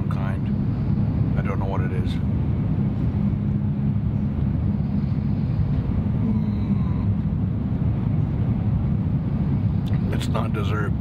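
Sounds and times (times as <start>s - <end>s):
train low rumble from inside: 0.0s - 11.0s.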